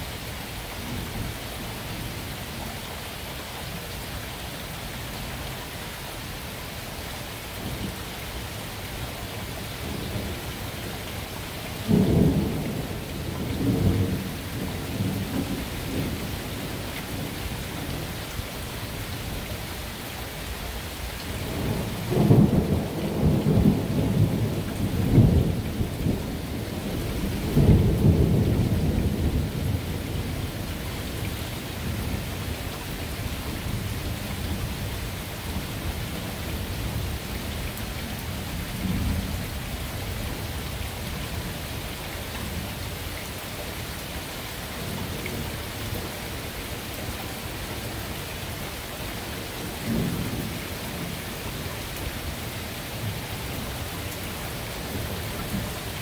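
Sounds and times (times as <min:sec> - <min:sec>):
steady rain: 0:00.0 - 0:56.0
rolling thunder: 0:11.8 - 0:17.4, 0:21.4 - 0:30.4.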